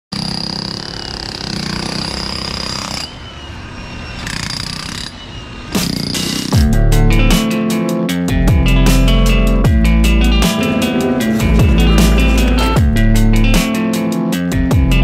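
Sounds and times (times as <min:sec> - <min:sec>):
demolition hammer on concrete: 0:00.1 - 0:03.0
music: 0:05.6 - 0:15.0.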